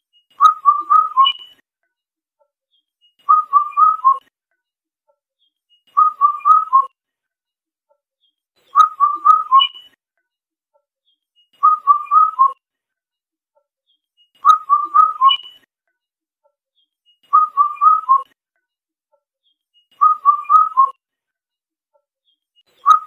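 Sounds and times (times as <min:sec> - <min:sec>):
cuckoo calling: 0:00.4 - 0:01.6, 0:03.3 - 0:04.2, 0:06.0 - 0:06.9, 0:08.7 - 0:10.0, 0:11.6 - 0:12.6, 0:14.4 - 0:15.6, 0:17.3 - 0:18.2, 0:20.0 - 0:20.9, 0:22.7 - 0:23.0.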